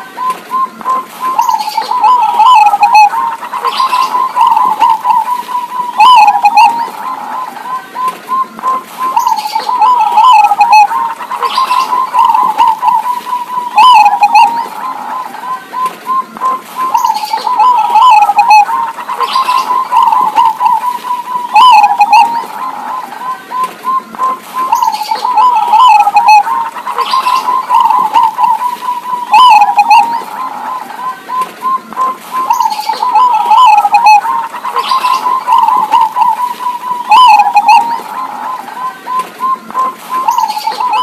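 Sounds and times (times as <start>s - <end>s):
doves cooing: 0.0s - 41.0s.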